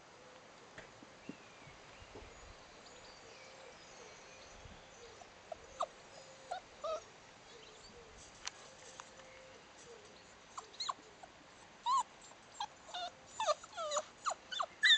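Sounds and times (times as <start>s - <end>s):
puppies whimpering: 5.5s - 7.1s, 10.6s - 14.9s.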